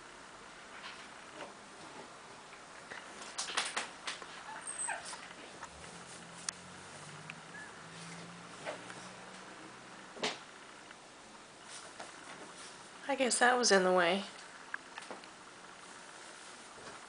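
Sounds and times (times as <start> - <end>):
dogs scuffling on cushions: 4.1 - 7.2.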